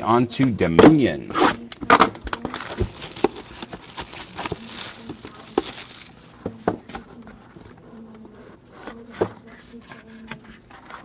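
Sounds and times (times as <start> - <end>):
papery rustling and scraping: 1.5 - 6.6.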